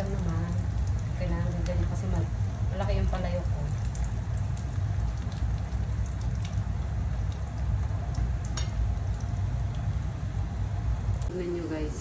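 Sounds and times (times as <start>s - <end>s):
fish sizzling in hot oil: 0.0s - 10.7s
oil popping: 3.4s - 9.9s.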